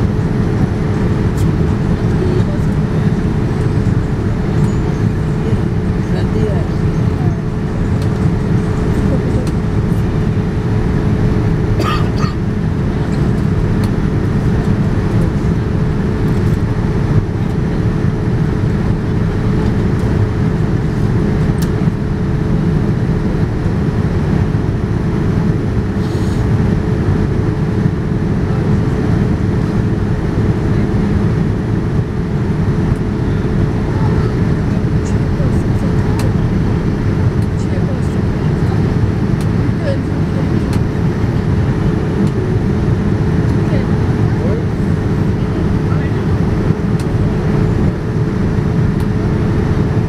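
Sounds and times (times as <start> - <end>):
airplane cabin noise: 0.0 - 50.0
low engine drone: 0.0 - 50.0.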